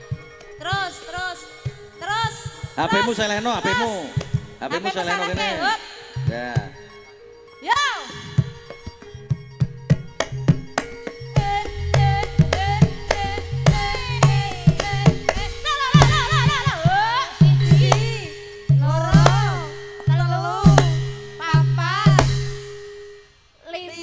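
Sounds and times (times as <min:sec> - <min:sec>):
rapid drum strokes: 0:09.9 - 0:22.8
wavering singing voice: 0:11.4 - 0:22.3
steady held note: 0:11.4 - 0:23.4.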